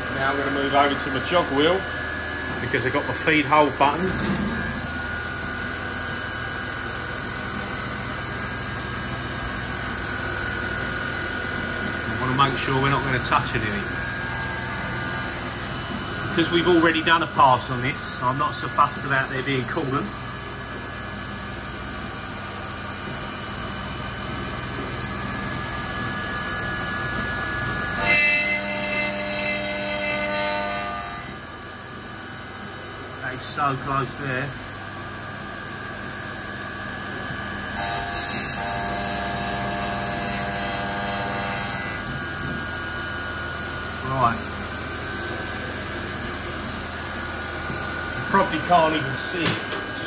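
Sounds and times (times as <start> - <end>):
milling machine spindle whine: 0.0 - 50.0
cutter ringing on metal: 27.9 - 31.5, 37.3 - 42.5.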